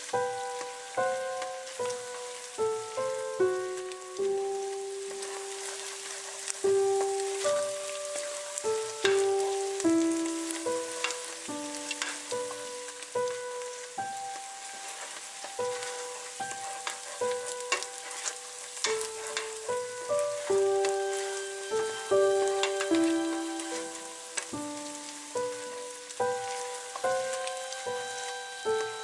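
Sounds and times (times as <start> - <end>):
onions sizzling in butter: 0.0 - 29.0
slow melody background music: 0.0 - 29.0
spoon stirring in pot: 15.6 - 19.8.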